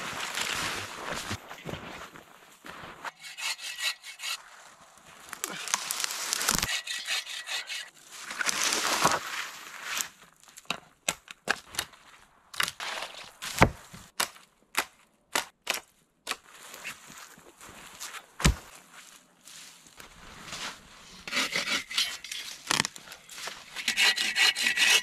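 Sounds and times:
branches dragged through snow: 0.0s - 3.1s, 4.4s - 6.7s, 8.0s - 10.2s, 18.8s - 21.3s.

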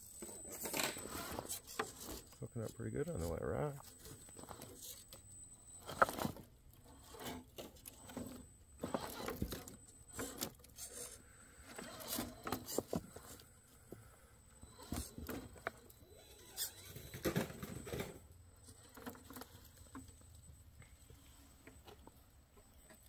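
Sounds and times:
toy car tires bumping over rocks: 0.5s - 5.1s, 5.8s - 13.4s, 14.7s - 19.9s.

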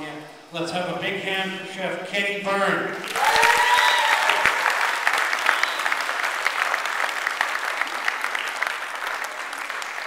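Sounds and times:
audience applauding: 3.0s - 10.0s.

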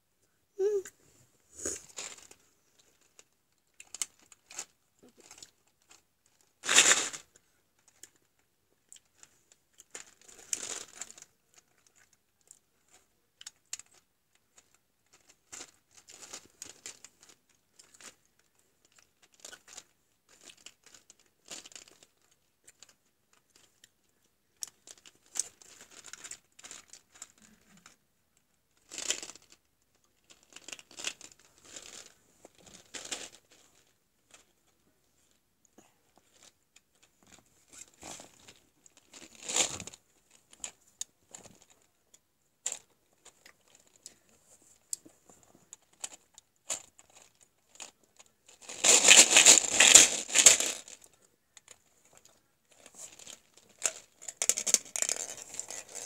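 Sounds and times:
rustling handling noises: 28.8s - 35.4s, 36.0s - 56.0s.

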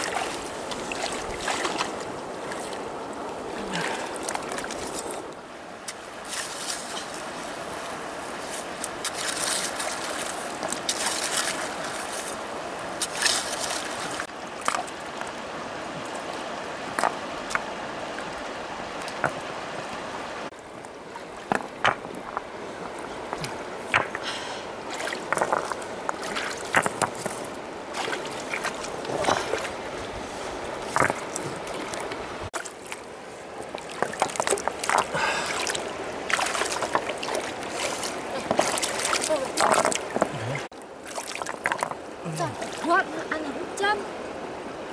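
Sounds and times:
water sloshing and splashing: 0.0s - 44.6s
stones knocking together: 21.5s - 22.5s, 23.3s - 24.2s, 25.2s - 27.4s, 39.6s - 40.5s.

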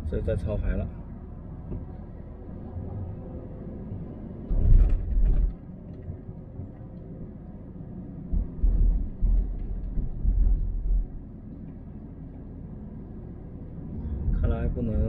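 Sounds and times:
car cabin drone: 0.0s - 15.0s
low rumbling surges: 7.2s - 15.0s.

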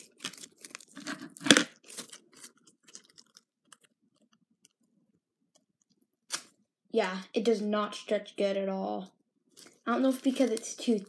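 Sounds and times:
slime crackling and popping wetly: 9.5s - 11.0s.

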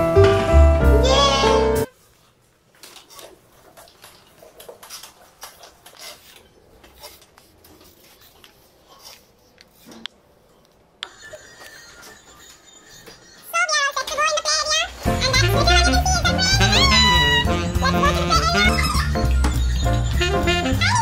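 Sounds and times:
music: 0.0s - 1.9s, 15.0s - 21.0s.

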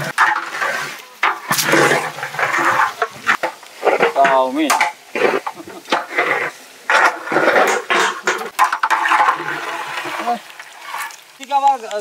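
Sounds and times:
stirrer scraping metal cauldron: 0.0s - 11.4s
food sizzling in pot: 0.0s - 12.0s.

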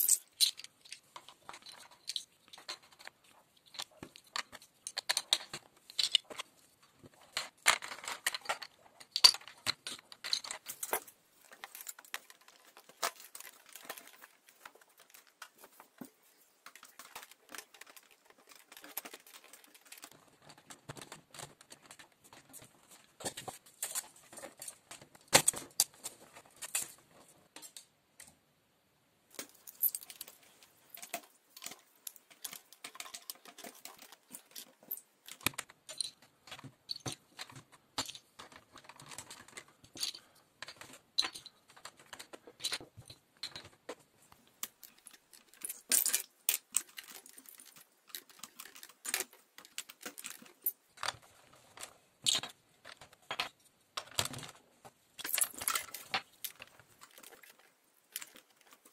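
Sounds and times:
plastic bricks clicking: 0.0s - 26.0s, 29.3s - 54.6s, 55.2s - 58.9s.

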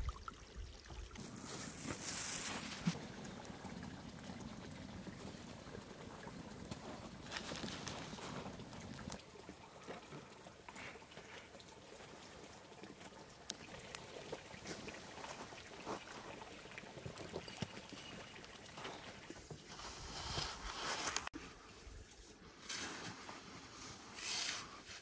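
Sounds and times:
liquid pouring and trickling: 0.0s - 19.6s.

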